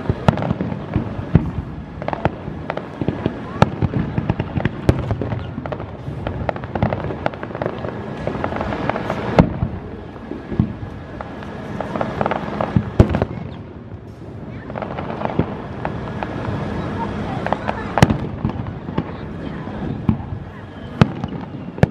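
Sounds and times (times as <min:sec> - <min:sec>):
firework shells bursting: 0:00.0 - 0:16.8
firework crackling: 0:00.0 - 0:21.9.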